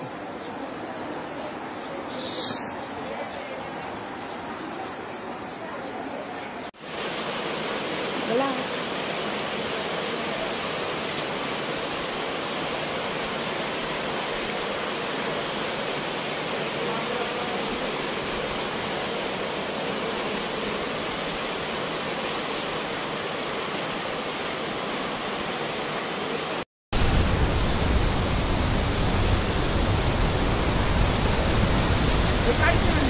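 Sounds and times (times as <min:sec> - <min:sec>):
water rushing: 0:06.7 - 0:33.0.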